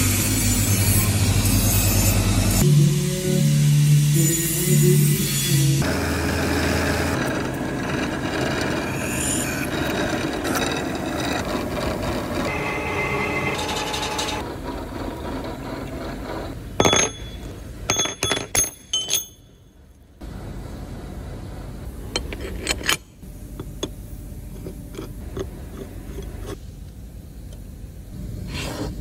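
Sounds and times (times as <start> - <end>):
workshop noise: 0.0 - 26.9
metal lathe running: 5.8 - 17.5.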